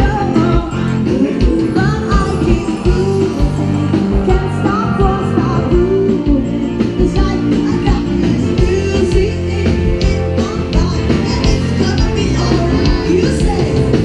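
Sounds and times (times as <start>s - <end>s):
pop band playing: 0.0s - 14.0s
woman singing: 0.0s - 14.0s.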